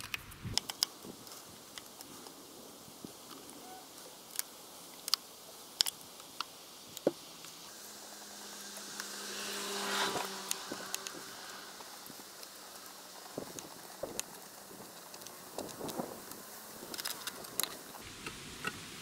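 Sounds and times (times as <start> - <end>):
buzzing hum: 7.5 - 18.5.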